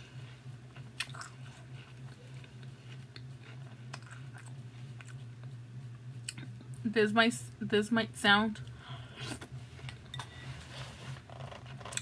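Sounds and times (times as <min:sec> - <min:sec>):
steady low hum: 0:00.0 - 0:12.0
person chewing cereal: 0:00.6 - 0:05.6.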